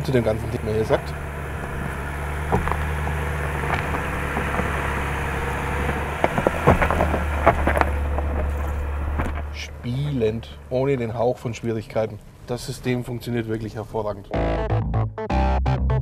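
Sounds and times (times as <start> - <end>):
stones cracking under tyres: 0.0 - 11.1
car engine running at low revs: 0.0 - 13.7.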